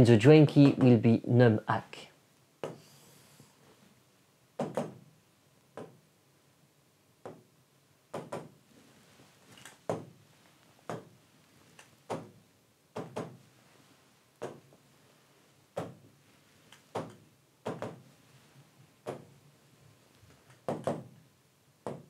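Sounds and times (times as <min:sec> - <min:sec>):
stylus tapping on touchscreen: 0:02.6 - 0:02.8, 0:05.7 - 0:06.0, 0:08.1 - 0:08.5.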